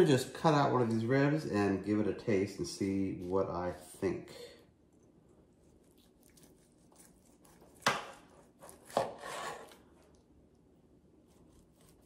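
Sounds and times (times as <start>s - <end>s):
knife sawing through ribs: 5.8s - 9.9s, 11.2s - 12.0s.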